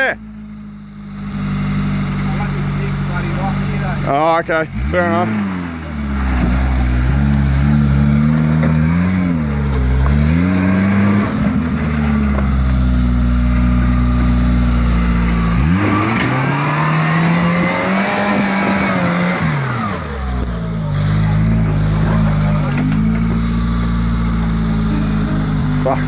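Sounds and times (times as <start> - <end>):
off-road vehicle engine revving: 0.0 - 26.0.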